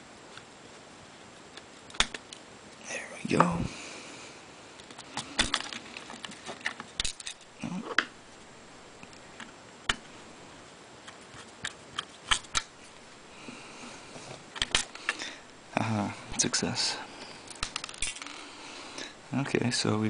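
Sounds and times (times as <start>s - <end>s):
clicks and knocks of handling: 4.8s - 8.1s.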